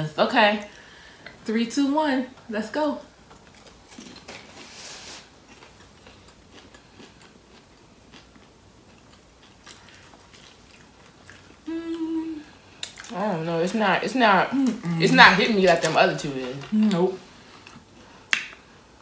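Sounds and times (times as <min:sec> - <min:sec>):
crunching and chewing popcorn: 0:03.3 - 0:04.7, 0:05.4 - 0:11.7.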